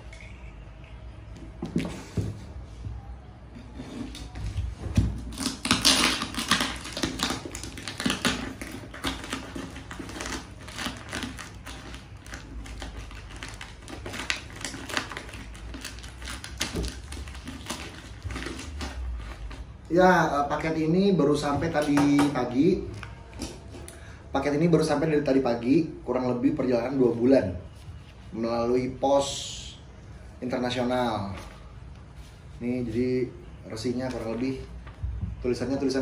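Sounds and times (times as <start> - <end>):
packing tape cut and torn: 5.1 - 19.7
plastic packing crinkling: 5.1 - 19.8.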